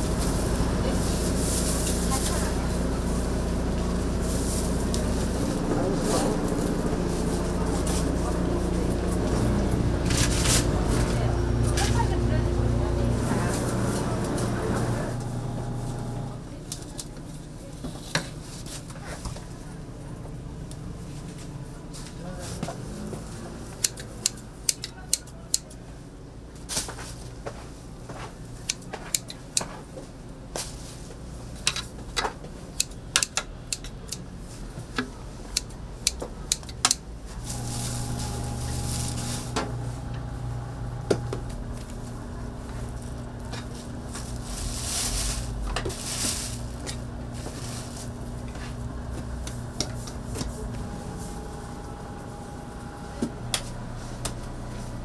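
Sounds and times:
machine hum: 0.0s - 16.6s, 37.0s - 55.0s.

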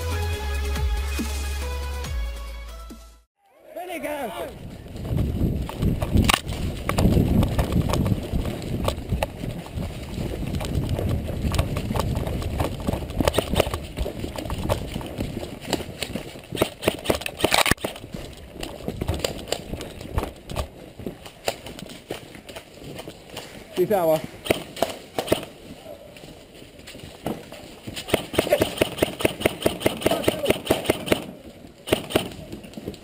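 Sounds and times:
microphone rustling: 4.6s - 28.1s.

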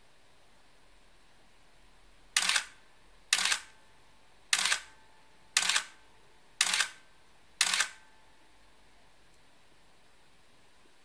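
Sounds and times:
camera shutter and motor drive: 2.4s - 3.8s, 4.5s - 5.0s, 5.6s - 6.0s, 6.6s - 7.0s, 7.6s - 8.1s.

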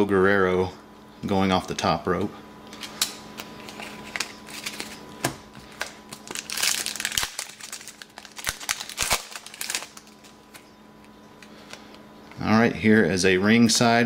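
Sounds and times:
foil wrapper tearing and crinkling: 3.6s - 5.0s, 5.7s - 10.7s.

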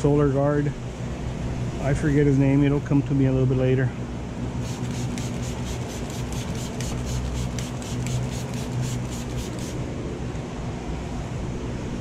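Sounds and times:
steady low hum: 0.0s - 12.0s
rapid rubbing strokes: 4.6s - 9.8s.

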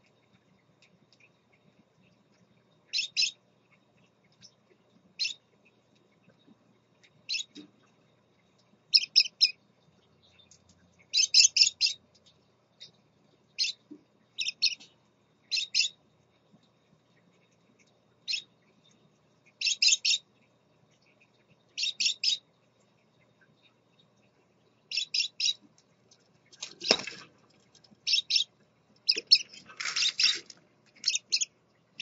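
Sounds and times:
parakeets chirping: 2.9s - 3.4s, 5.2s - 5.4s, 7.3s - 7.6s, 8.9s - 9.6s, 11.1s - 12.0s, 13.6s - 13.8s, 14.4s - 14.8s, 15.5s - 16.0s, 18.3s - 18.5s, 19.6s - 20.2s, 21.8s - 22.4s, 24.9s - 25.6s, 26.6s - 27.2s, 28.0s - 31.5s.

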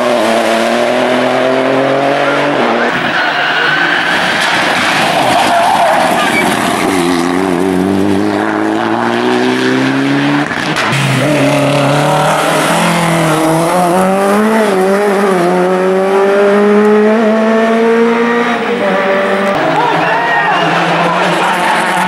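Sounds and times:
rally car accelerating: 0.0s - 22.0s
second rally car accelerating: 0.0s - 22.0s.

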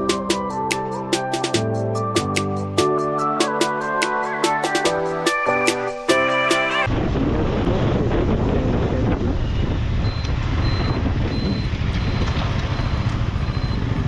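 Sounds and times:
riding wind rush: 6.8s - 14.0s
motorcycle engine at low speed: 6.9s - 14.0s
faint high beeps: 9.5s - 13.9s.

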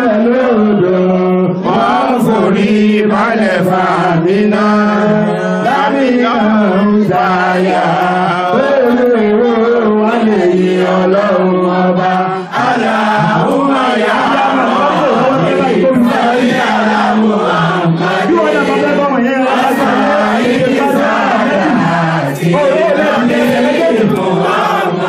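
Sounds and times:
men chanting in unison: 0.0s - 25.0s.

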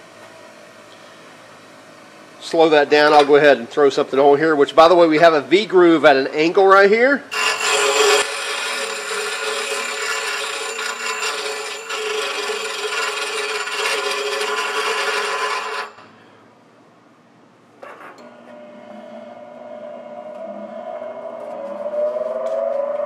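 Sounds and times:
grinder motor running: 7.3s - 16.0s, 18.2s - 22.6s
grinder wheel grinding steel: 7.3s - 16.1s, 18.2s - 23.0s.

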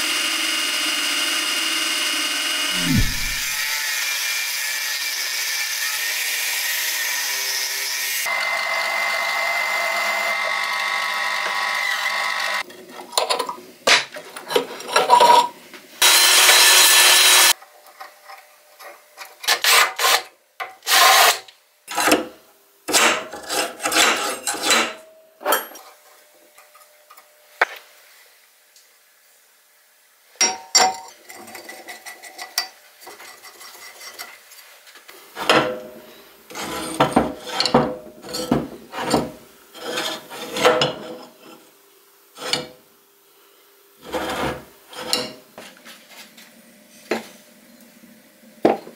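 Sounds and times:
power tool running: 0.0s - 6.5s, 16.0s - 17.6s
grinding or filing strokes: 2.7s - 3.8s, 36.5s - 41.6s, 44.0s - 45.4s.

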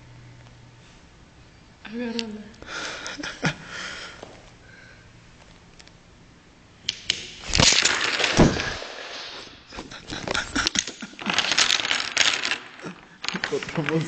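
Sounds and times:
sharp wooden crack: 6.9s - 14.0s
wooden blocks clattering down: 6.9s - 14.0s.

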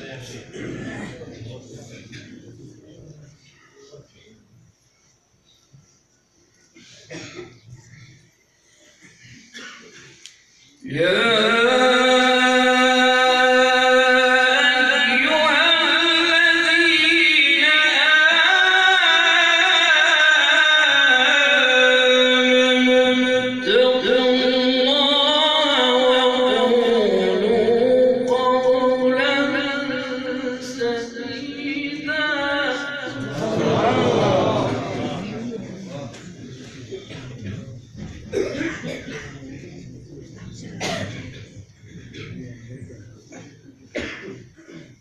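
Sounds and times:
man reciting melodically: 10.8s - 36.2s.

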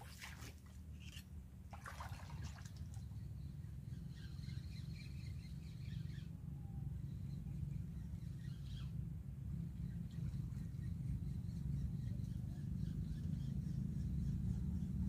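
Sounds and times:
brief rustle or splash: 0.0s - 3.1s
faint bird chirps: 1.0s - 1.2s
low wind rumble on microphone: 2.8s - 15.0s.

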